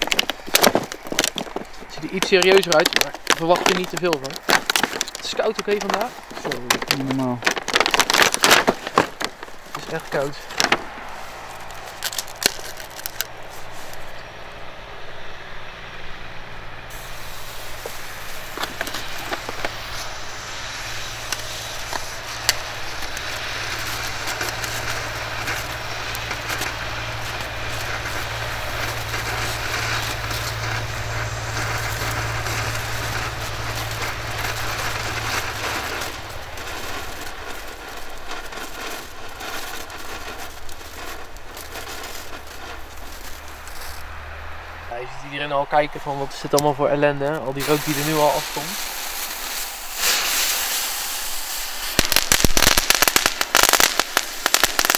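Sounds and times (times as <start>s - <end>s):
firework hissing spray: 0.0s - 15.3s, 16.8s - 54.9s
firework crackles: 0.0s - 54.9s.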